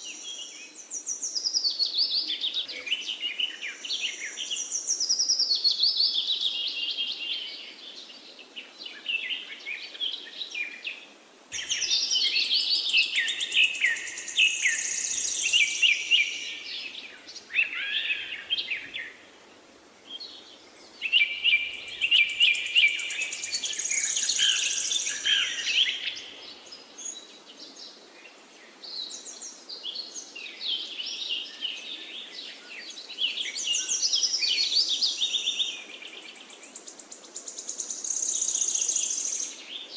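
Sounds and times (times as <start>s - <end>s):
birds chirping and singing: 11.6s - 19.2s, 20.1s - 27.9s.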